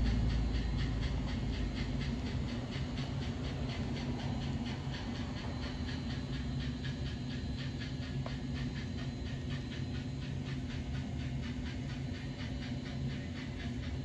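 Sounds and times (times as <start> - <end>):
steady low hum: 0.0 - 14.0
steam locomotive chuffing: 0.0 - 14.0.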